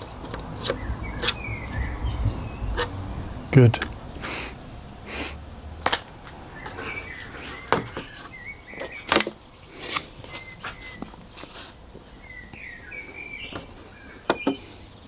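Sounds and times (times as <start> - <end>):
faint bird chirps: 6.5 - 15.0.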